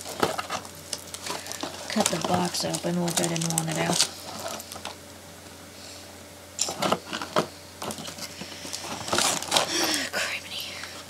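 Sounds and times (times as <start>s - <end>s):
packaging clicks and crinkles: 0.0s - 5.0s, 6.6s - 10.1s
low steady hum: 0.0s - 11.0s.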